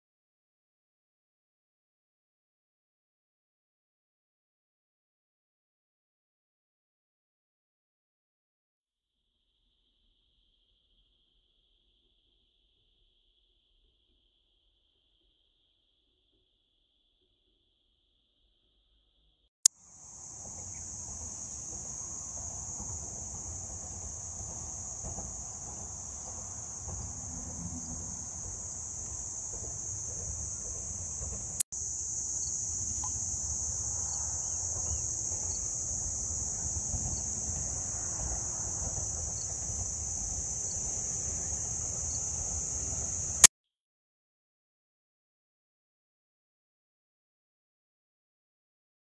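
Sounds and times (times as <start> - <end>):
insects shrilling: 19.9 - 43.5.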